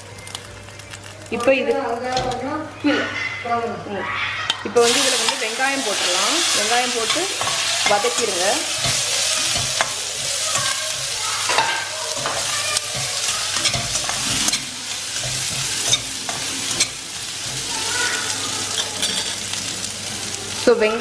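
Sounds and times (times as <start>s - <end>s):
onions sizzling in hot oil: 0.0s - 21.0s
metal spatula scraping pan: 4.4s - 17.7s
spatula clinking on pan: 6.6s - 17.0s, 18.7s - 19.4s.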